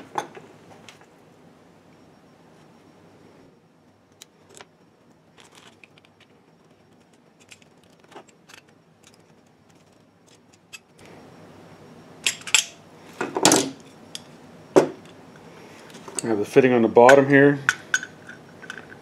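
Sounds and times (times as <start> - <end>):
small metal parts clinking: 5.4 - 6.3, 6.9 - 10.9.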